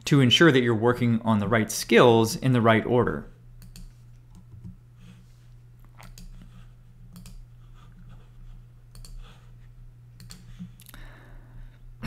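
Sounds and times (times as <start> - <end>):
faint low hum: 0.0 - 12.0
computer mouse clicks: 3.6 - 4.8, 5.9 - 6.5, 7.1 - 7.4, 8.9 - 9.3, 10.2 - 10.9.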